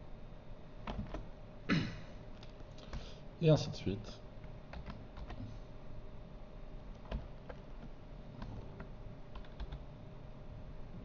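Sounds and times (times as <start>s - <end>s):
faint steady hum: 0.0s - 11.0s
keyboard keys clicking: 0.8s - 1.2s, 4.7s - 5.5s, 6.9s - 9.8s.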